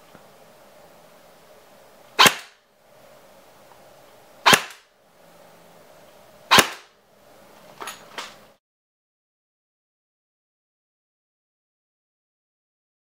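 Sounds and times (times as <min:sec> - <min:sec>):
airsoft gun shots: 0:02.2 - 0:02.6, 0:04.4 - 0:04.9, 0:06.5 - 0:07.0.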